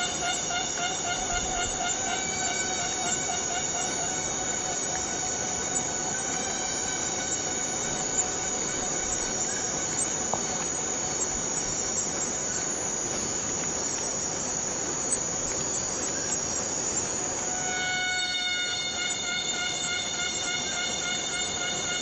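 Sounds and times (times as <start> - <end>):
cicadas chorus: 0.0 - 22.0.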